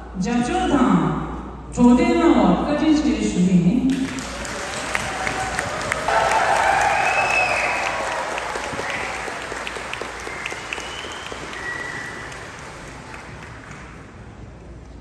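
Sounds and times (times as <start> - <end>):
audience applauding: 3.9 - 14.5.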